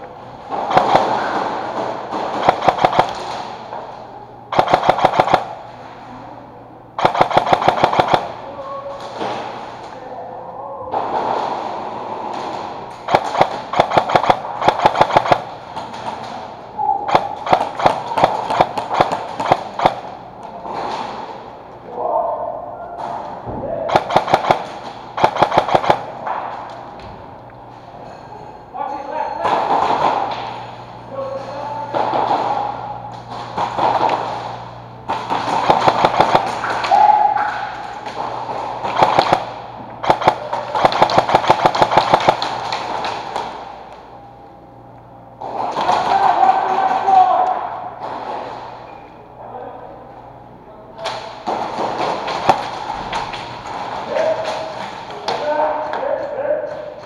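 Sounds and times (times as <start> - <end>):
airsoft guns firing: 0.5 - 5.7, 7.0 - 9.8, 10.9 - 21.6, 23.0 - 26.8, 29.4 - 31.1, 31.8 - 44.1, 45.4 - 48.8, 51.0 - 55.9
airsoft gunfire cracks: 0.7 - 3.6, 4.5 - 5.6, 7.0 - 8.4, 13.0 - 15.5, 17.1 - 20.1, 23.9 - 26.2, 33.6 - 36.9, 38.8 - 43.6.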